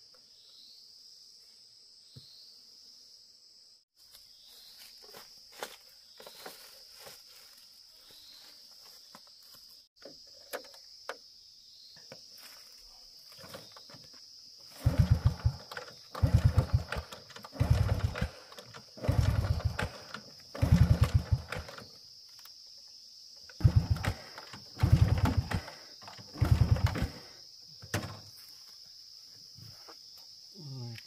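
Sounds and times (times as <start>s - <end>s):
motorcycle engine kick-start chug: 14.8s - 21.9s, 23.6s - 27.3s.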